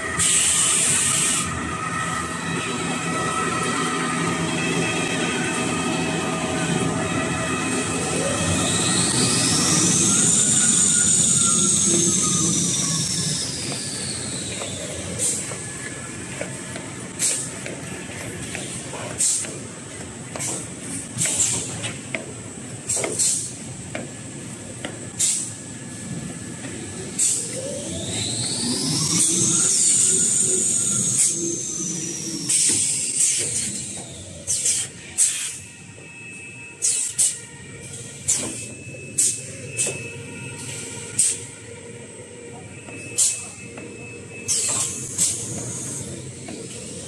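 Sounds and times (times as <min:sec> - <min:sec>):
machine noise with high tone: 0:00.0 - 0:47.0
sharp hisses of air: 0:00.2 - 0:01.5, 0:25.1 - 0:25.6, 0:34.5 - 0:35.6
short air hisses: 0:25.2 - 0:25.5
motor whine rising in pitch: 0:26.7 - 0:34.1.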